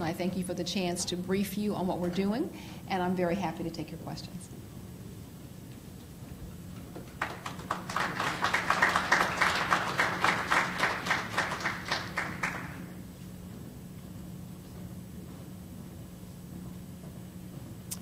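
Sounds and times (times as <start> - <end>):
steady low hum: 0.0 - 18.0
audience applauding: 7.0 - 13.0.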